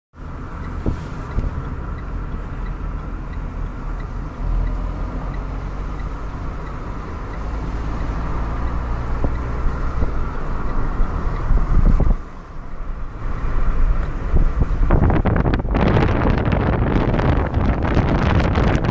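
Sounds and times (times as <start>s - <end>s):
car engine and tyre noise: 0.1s - 18.9s
faint regular ticking: 0.2s - 14.2s.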